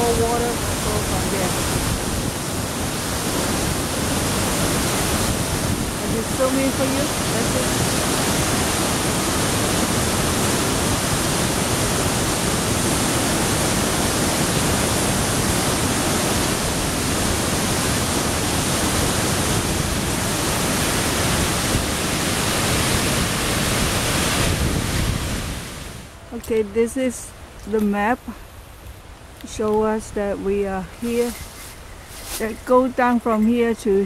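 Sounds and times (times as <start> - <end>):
water rushing over falls: 0.0 - 26.2.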